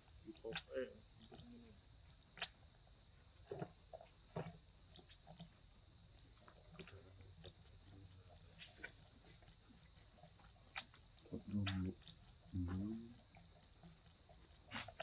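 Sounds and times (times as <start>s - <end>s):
high-pitched insect drone: 10.9s - 15.0s.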